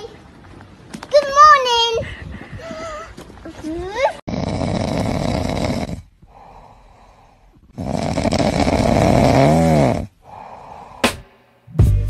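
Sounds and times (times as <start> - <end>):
dog snoring: 4.3 - 6.1, 7.8 - 10.1.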